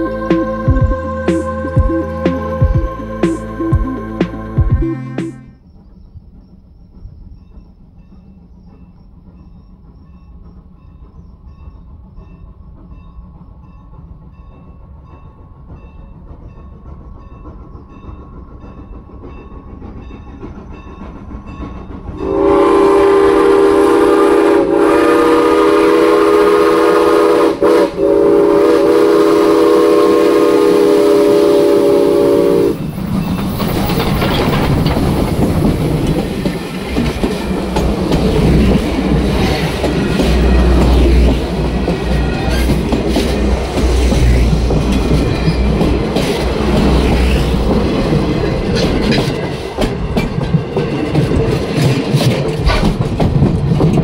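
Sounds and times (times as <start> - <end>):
steam train rumbling: 0.0 - 54.0
train wheels clacking on rails: 0.0 - 54.0
steam whistle blast: 22.2 - 32.8.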